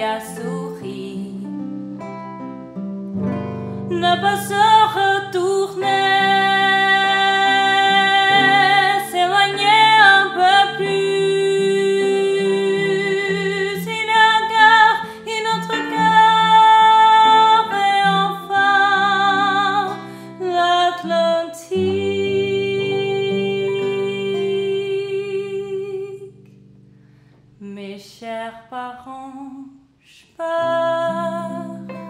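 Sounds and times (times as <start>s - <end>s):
woman singing a slow ballad: 0.0s - 2.0s, 3.6s - 26.4s, 27.6s - 32.0s
electric piano: 0.0s - 20.5s.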